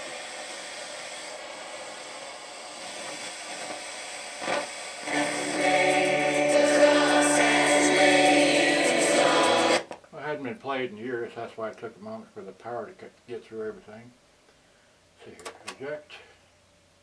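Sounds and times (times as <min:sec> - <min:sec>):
choral music on radio: 0:00.0 - 0:10.0
radio hiss: 0:00.0 - 0:10.3.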